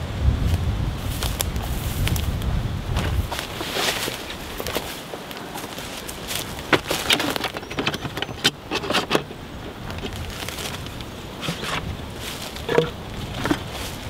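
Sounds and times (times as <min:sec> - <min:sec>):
plastic lid lifted off: 0:12.7 - 0:13.6.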